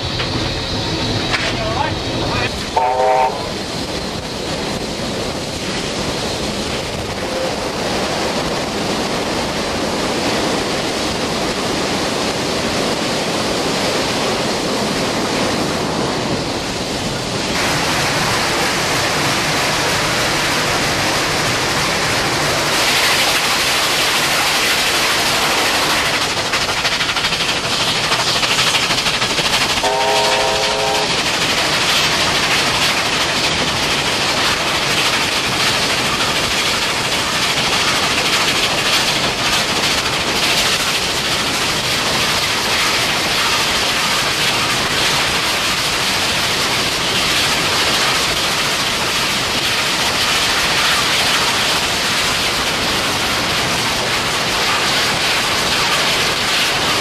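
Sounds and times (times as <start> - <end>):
steam locomotive exhaust rush: 0.0 - 57.0
locomotive whistle blast: 2.7 - 3.5, 29.8 - 31.1.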